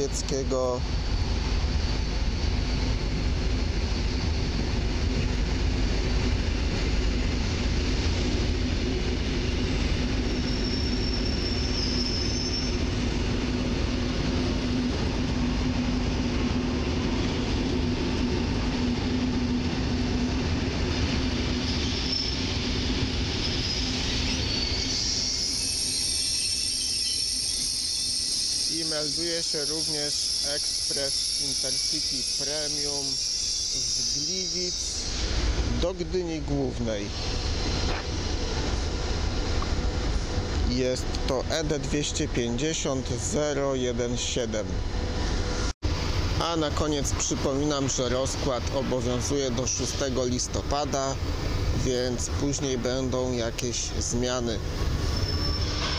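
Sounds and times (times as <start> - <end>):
train wheels rumbling: 0.0 - 55.9
high wheel squeals: 9.5 - 13.1, 21.3 - 35.5, 53.6 - 55.9.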